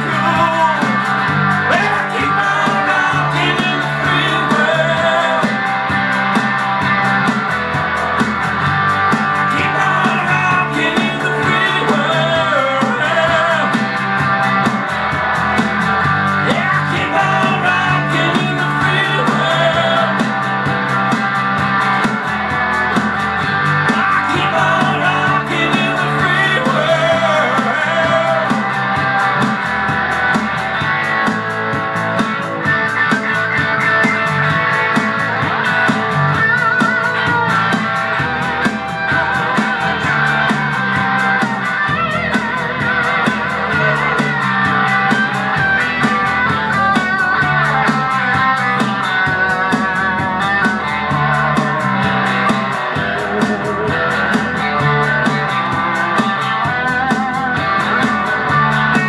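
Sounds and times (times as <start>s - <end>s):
man singing: 0.0s - 6.0s, 9.4s - 14.0s, 16.4s - 20.5s, 24.0s - 29.3s, 43.0s - 44.4s
electric guitar: 0.0s - 59.0s.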